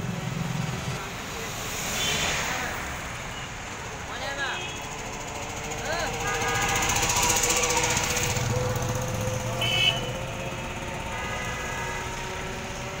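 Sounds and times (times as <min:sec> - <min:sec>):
city street traffic: 0:00.0 - 0:13.0
motorcycles and cars passing: 0:00.0 - 0:13.0
car horn beep: 0:06.2 - 0:07.2, 0:09.6 - 0:10.2.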